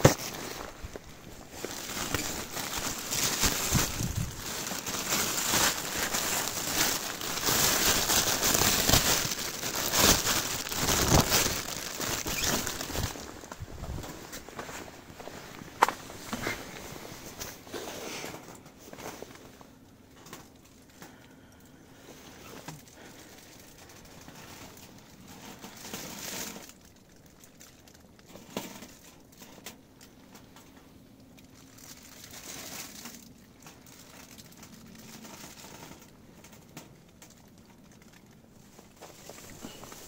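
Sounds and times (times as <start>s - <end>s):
tent fabric rustling: 0.0s - 19.6s, 38.6s - 40.0s
wood stove fire crackling: 0.0s - 40.0s.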